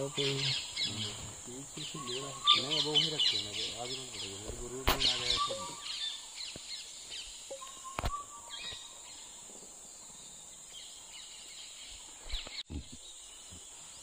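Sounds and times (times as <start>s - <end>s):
high-pitched insect drone: 0.0s - 11.4s
bird chirps: 0.0s - 14.0s
sharp click: 4.8s - 5.2s.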